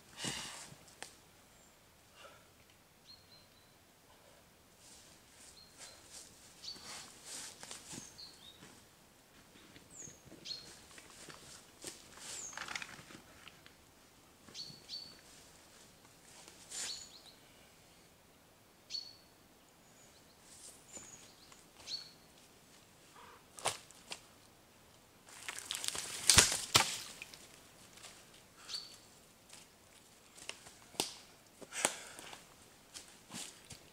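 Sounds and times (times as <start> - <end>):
small birds chirping: 5.5 - 7.0, 9.6 - 10.9, 14.5 - 15.2, 18.9 - 22.4, 28.6 - 29.1
twigs snapping: 25.3 - 27.6, 30.4 - 32.0
footsteps crunching dry leaves: 25.3 - 28.2.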